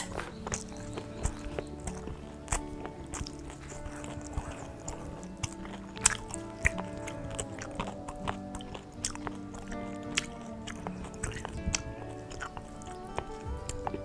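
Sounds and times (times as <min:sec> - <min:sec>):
background music: 0:00.0 - 0:14.0
crunchy chewing: 0:00.0 - 0:14.0.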